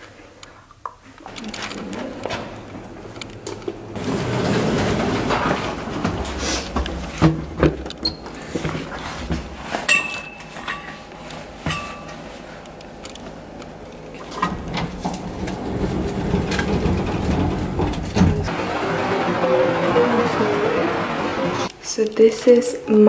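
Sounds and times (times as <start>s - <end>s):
footsteps: 1.0s - 18.6s
lift doors sliding: 1.2s - 21.7s.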